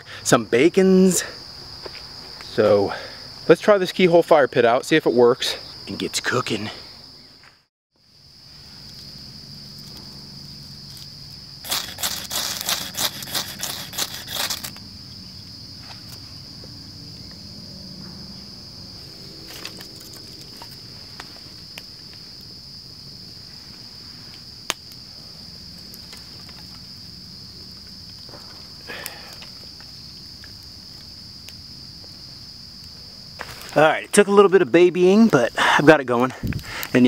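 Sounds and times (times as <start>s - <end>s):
crickets trilling: 0.0s - 37.0s
campfire snaps and crackles: 8.1s - 17.4s, 18.5s - 37.0s
ferro rod scraping: 11.6s - 14.8s.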